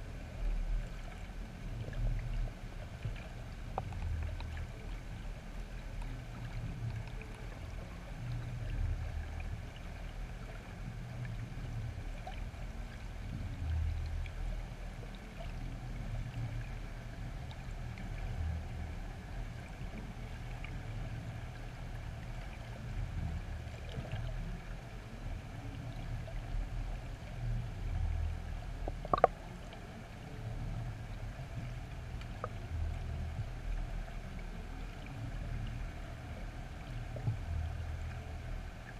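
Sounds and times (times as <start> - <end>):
low underwater rumble: 0.0 - 38.9
faint clicks: 0.4 - 38.9.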